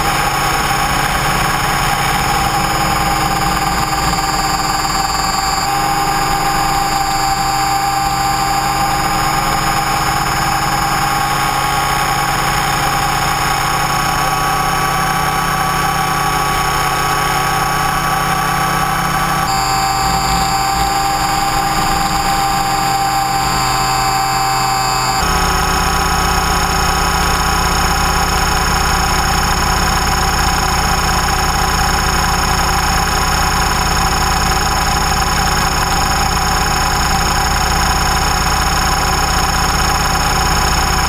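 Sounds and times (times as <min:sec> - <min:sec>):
helicopter motor high whine: 0:00.0 - 0:41.0
lower hum: 0:01.1 - 0:10.1, 0:19.4 - 0:25.8.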